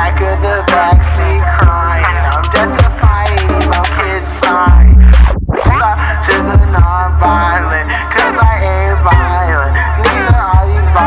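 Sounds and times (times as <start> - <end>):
hip hop music: 0.0 - 11.0
deep bass note: 4.7 - 7.2.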